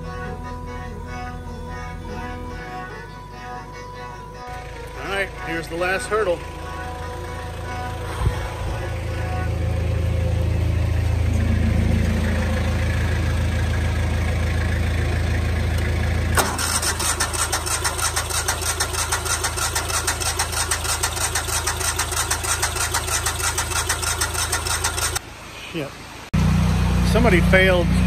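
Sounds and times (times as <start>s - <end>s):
low engine hum: 4.5s - 25.2s, 26.4s - 28.0s
small engine with fast pulse: 16.3s - 25.2s.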